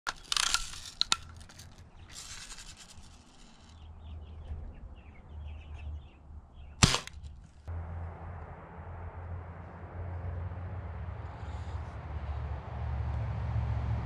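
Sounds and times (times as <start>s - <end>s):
bb gun cocking scrape: 0.1s - 3.8s, 6.8s - 7.5s
birds chirping faintly: 0.1s - 7.7s
sharp gun clicks: 6.8s - 7.5s.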